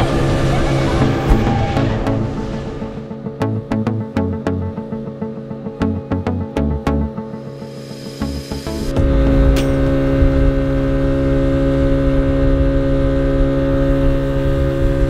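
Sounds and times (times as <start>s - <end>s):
low rumble: 0.0s - 4.4s, 8.2s - 15.0s
motorboat engine running: 0.0s - 5.0s, 8.2s - 15.0s.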